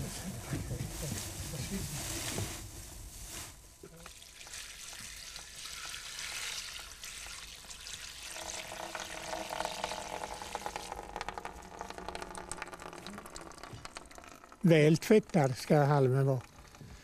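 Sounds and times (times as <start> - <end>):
liquid pouring through straw: 3.8 - 17.0.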